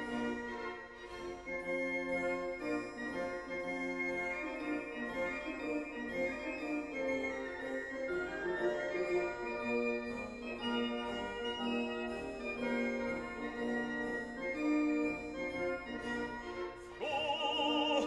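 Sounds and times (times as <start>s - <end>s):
slow organ-like chords: 17.0s - 18.0s
vibrato singing voice: 17.0s - 18.0s.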